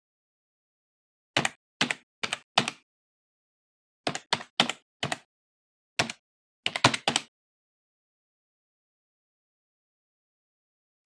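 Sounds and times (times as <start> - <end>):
computer keyboard typing: 1.4 - 2.8, 4.1 - 5.3, 6.0 - 7.3.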